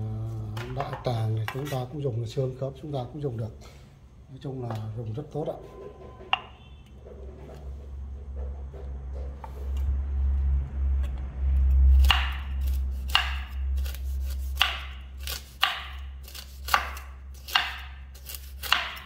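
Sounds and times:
low rumble: 5.5 - 14.2
knife chopping fruit: 11.8 - 19.0.

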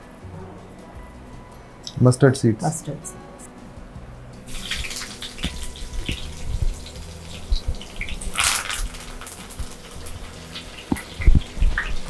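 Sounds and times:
hot oil sizzling in a pan: 4.4 - 12.0
oil popping: 4.5 - 12.0.

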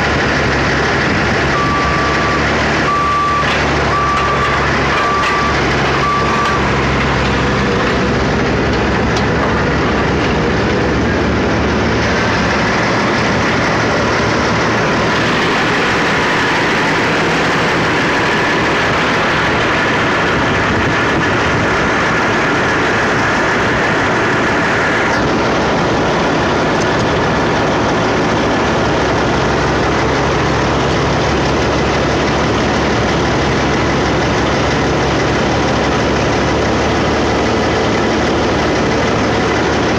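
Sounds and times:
diesel engines running: 0.0 - 39.9
high steady whine: 0.0 - 39.9
reversing beeper: 1.5 - 8.2.

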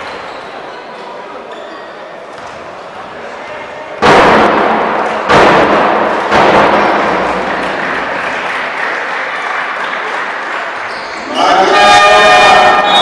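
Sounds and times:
crowd shouting and cheering: 4.0 - 13.0.

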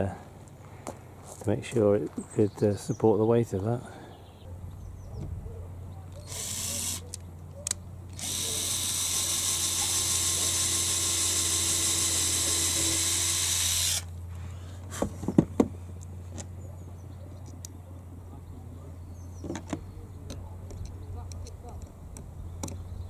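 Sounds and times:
power drill boring: 6.3 - 7.0, 8.1 - 14.1.

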